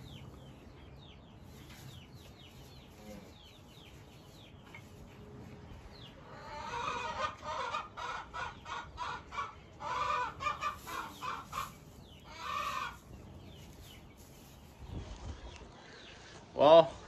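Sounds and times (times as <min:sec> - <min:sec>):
chicken clucking: 0:00.1 - 0:15.8
chicken drawn-out call: 0:06.2 - 0:13.1.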